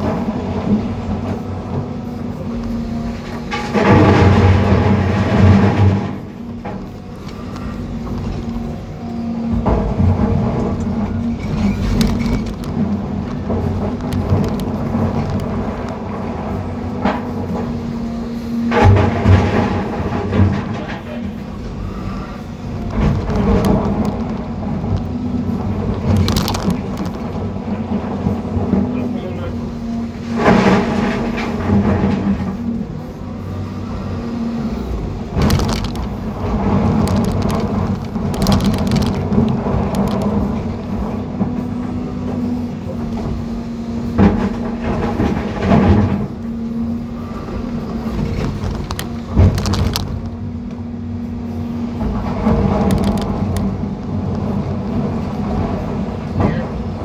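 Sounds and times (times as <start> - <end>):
excavator diesel engine rumbling: 0.0 - 57.0
knocks and clatter of rocks: 9.6 - 16.0, 22.8 - 28.9, 35.3 - 40.8, 48.0 - 50.4.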